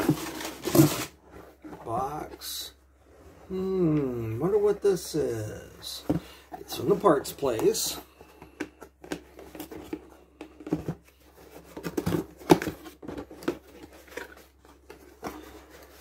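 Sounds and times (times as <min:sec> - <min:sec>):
cardboard box being opened: 0:00.0 - 0:01.9
cardboard and paper rustling: 0:00.0 - 0:02.7, 0:04.6 - 0:16.0.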